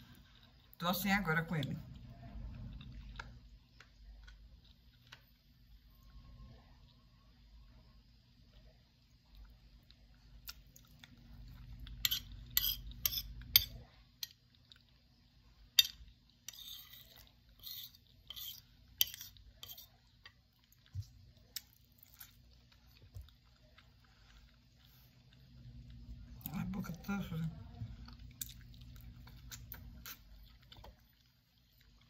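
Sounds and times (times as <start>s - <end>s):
chewing: 0.0s - 0.8s, 1.8s - 32.0s
spoon scraping a plate: 12.0s - 13.8s, 15.8s - 19.9s.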